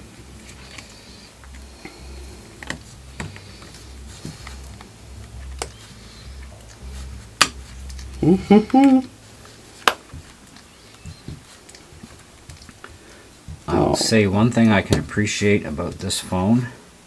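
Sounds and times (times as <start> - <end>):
low steady hum: 0.0 - 17.0
fingers tapping a smartphone: 9.8 - 13.7.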